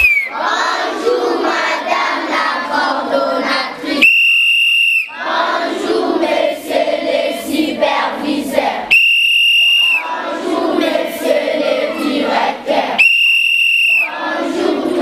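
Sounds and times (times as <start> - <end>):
long whistle blast: 0.0 - 0.4, 4.0 - 5.1, 8.9 - 10.0, 13.0 - 14.2
children chanting: 0.0 - 4.4, 5.0 - 8.9, 9.6 - 15.0.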